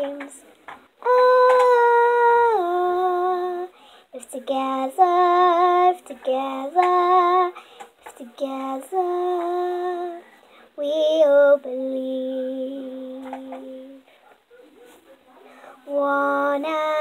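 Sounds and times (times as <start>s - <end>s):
girl singing unaccompanied: 0.0s - 14.1s, 15.6s - 17.0s
girl breathing between phrases: 3.7s - 4.1s.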